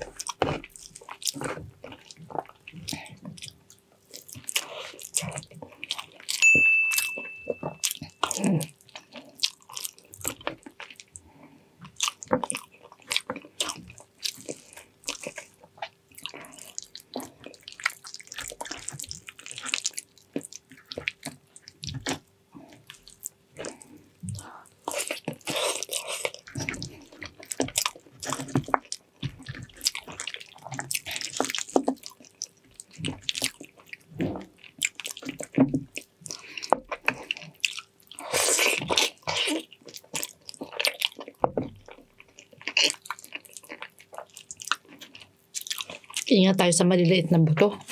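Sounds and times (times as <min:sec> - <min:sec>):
close-up chewing and sucking: 0:00.0 - 0:06.4, 0:07.8 - 0:46.3
short ringing clink: 0:06.4 - 0:07.8.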